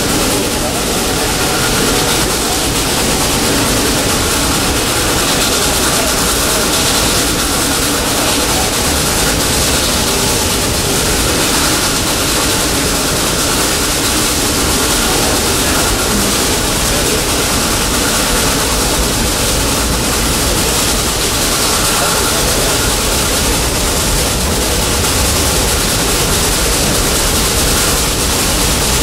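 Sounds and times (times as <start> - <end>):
steam locomotive working: 0.0 - 29.0
train cars rumbling on rails: 0.0 - 29.0.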